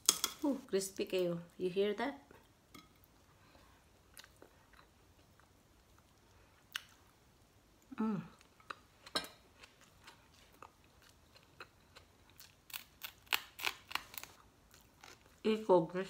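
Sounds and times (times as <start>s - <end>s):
person humming: 7.9s - 8.4s
crunchy chewing: 9.5s - 15.4s.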